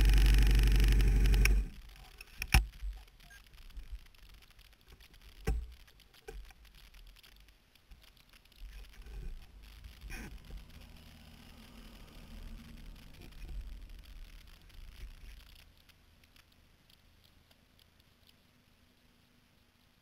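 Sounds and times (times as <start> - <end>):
vehicle engine running: 0.0 - 1.8
faint low traffic rumble: 8.8 - 20.0.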